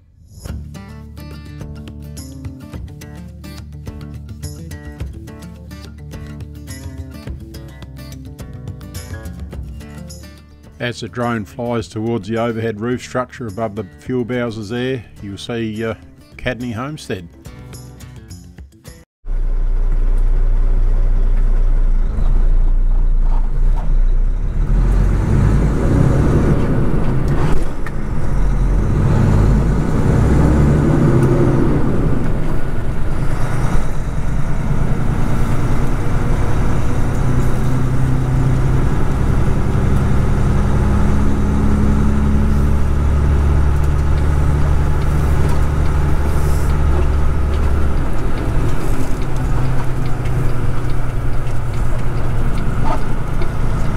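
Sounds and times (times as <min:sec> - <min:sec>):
truck diesel engine: 0:19.2 - 0:53.9.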